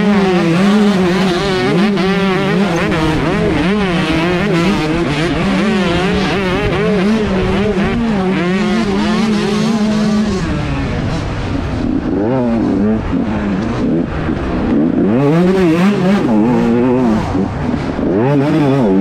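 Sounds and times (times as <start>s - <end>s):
dirt bike engines revving: 0.0s - 19.0s.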